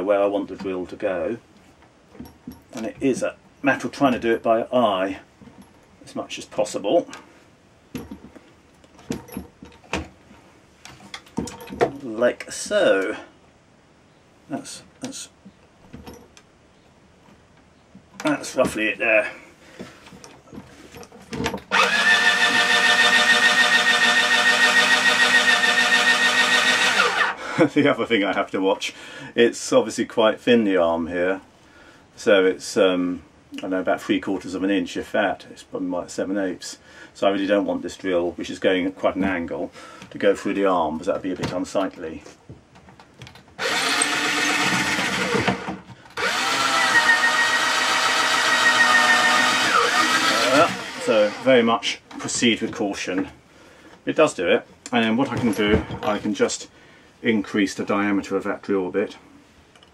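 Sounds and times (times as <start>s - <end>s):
power drill running: 21.7s - 27.4s, 43.6s - 51.5s.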